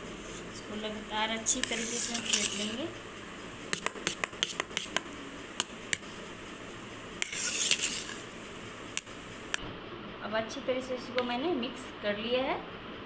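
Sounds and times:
swishing scrape in bowl: 1.5s - 2.8s, 3.8s - 5.0s, 7.2s - 8.3s.

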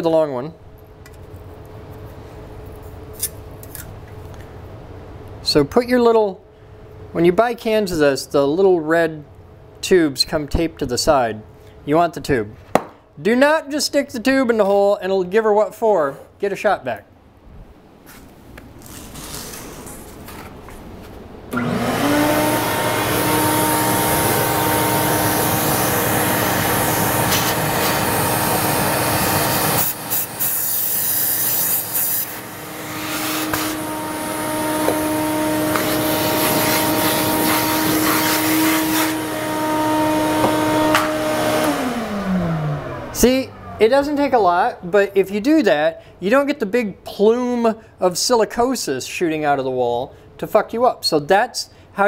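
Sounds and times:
vacuum motor whine: 21.5s - 44.1s
compressed air hissing: 23.8s - 39.3s.

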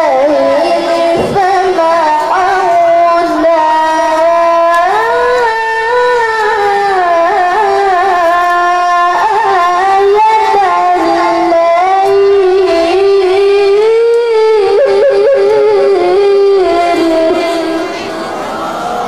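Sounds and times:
boy reciting melodically: 0.0s - 19.0s.

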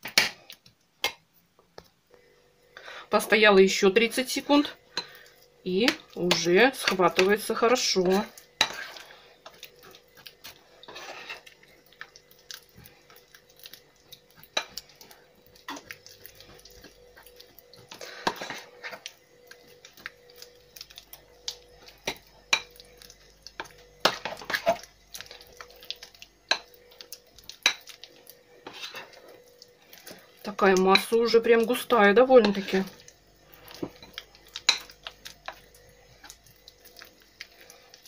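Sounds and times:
metal spoon scraping glass bowl: 10.8s - 11.5s, 32.4s - 32.9s.

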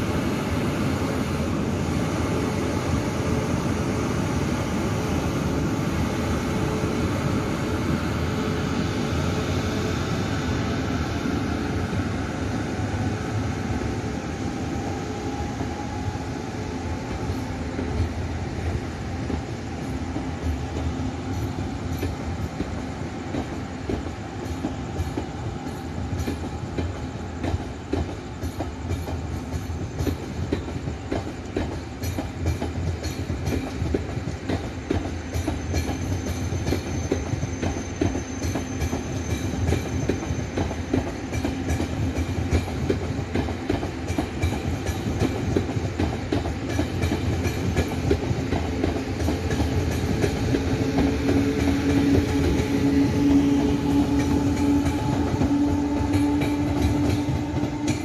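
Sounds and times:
train wheels clattering over rail joints: 19.3s - 58.0s.

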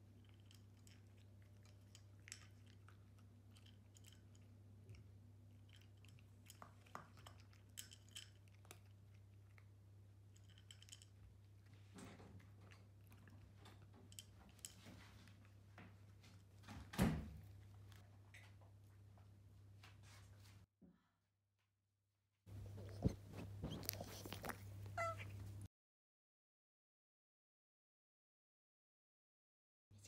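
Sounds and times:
cat chewing and licking: 0.0s - 16.4s, 22.5s - 25.6s.

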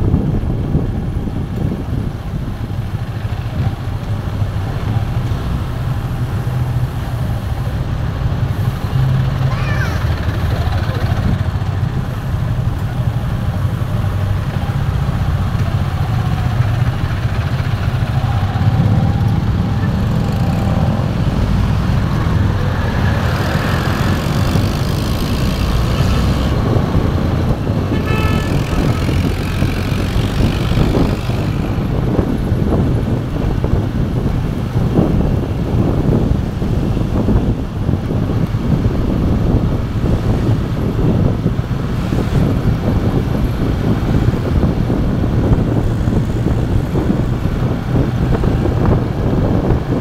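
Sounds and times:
motorcycle road noise: 0.0s - 50.0s
wind buffeting: 0.0s - 50.0s
vehicle horn toot: 27.9s - 29.3s.

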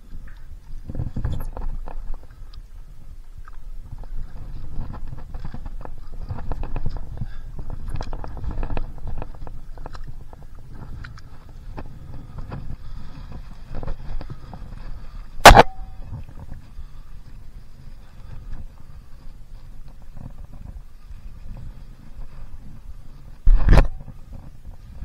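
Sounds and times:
knocks and clatter on paddleboard: 0.2s - 2.4s, 3.4s - 25.0s
sharp ringing knock: 15.4s - 16.0s.

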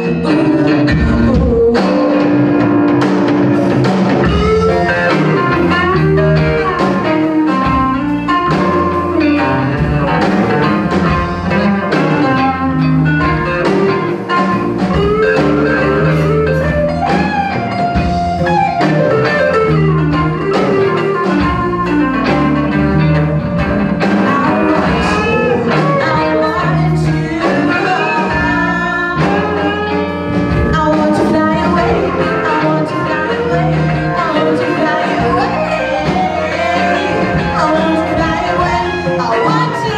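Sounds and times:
woman singing: 0.0s - 2.6s, 24.0s - 39.9s
bass guitar: 0.0s - 39.9s
drum kit: 0.0s - 39.9s
electric guitars: 0.0s - 39.9s.

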